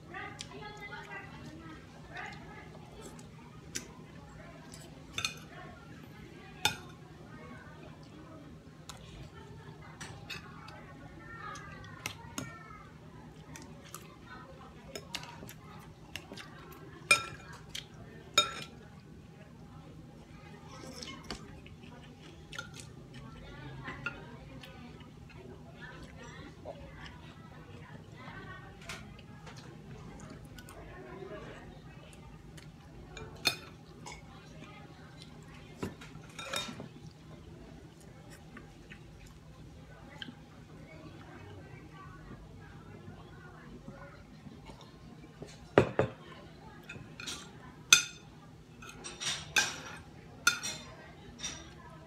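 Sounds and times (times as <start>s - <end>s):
cutlery clinking on glass bowl: 46.8s - 48.2s, 48.8s - 51.8s.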